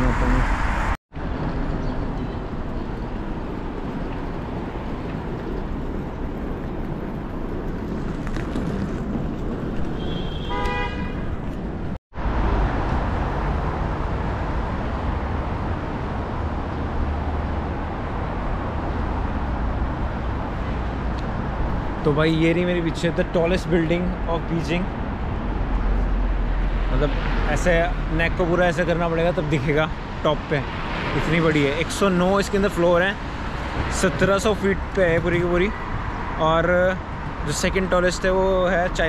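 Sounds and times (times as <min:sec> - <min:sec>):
busy city road traffic: 0:00.0 - 0:39.0
short car horn toots: 0:10.0 - 0:11.2.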